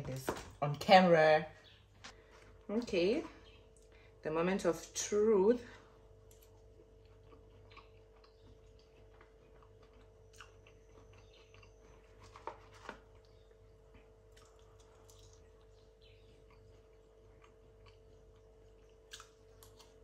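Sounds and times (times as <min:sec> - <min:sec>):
steady low hum: 0:00.0 - 0:12.3
person chewing food: 0:06.0 - 0:20.0.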